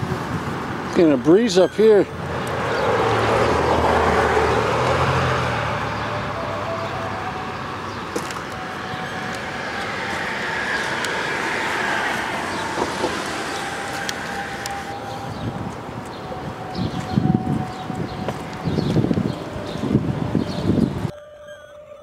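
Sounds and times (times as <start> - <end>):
vehicle passing by: 2.0 - 21.1.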